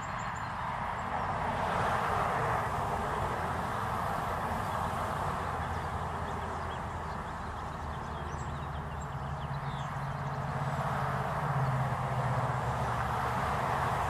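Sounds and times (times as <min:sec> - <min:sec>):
background traffic hum: 0:00.0 - 0:14.0
vehicle passing drone: 0:00.6 - 0:14.0
small birds calling: 0:04.3 - 0:12.9.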